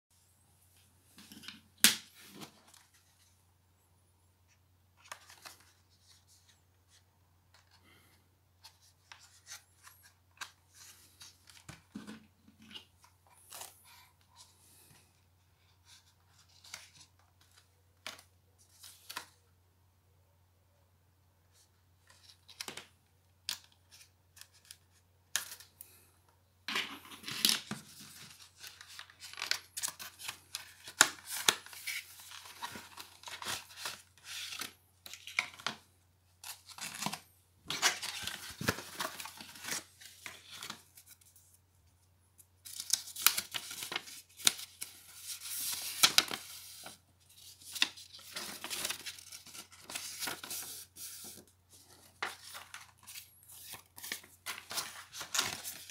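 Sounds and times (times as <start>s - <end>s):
paper leaflet rustling: 42.6s - 55.9s.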